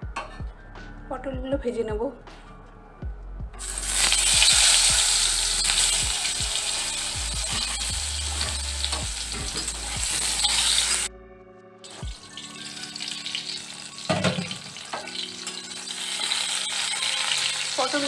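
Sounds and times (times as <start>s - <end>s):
vegetables sizzling in oil: 3.6s - 11.1s, 11.9s - 18.0s.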